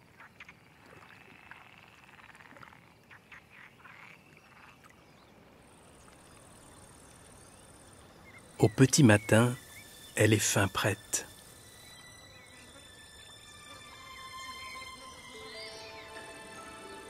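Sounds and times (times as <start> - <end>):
frogs croaking: 0.0 - 17.0
insect high trill: 5.6 - 17.0.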